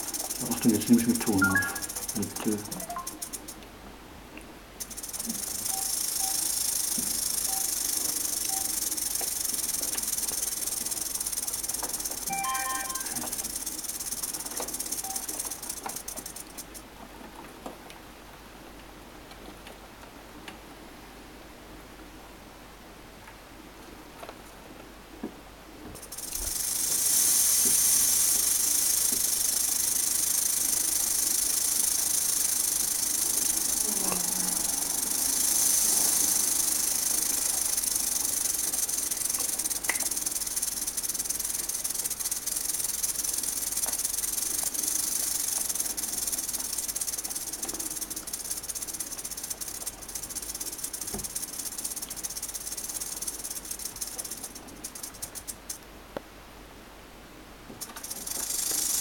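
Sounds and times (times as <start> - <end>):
rattlesnake rattle buzzing: 0.0 - 3.6, 4.8 - 16.9, 26.0 - 55.8, 57.8 - 59.0.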